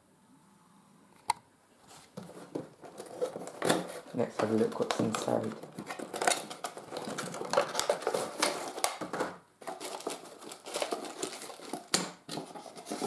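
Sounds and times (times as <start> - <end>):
plastic tray crinkling in cardboard box: 2.2 - 13.0.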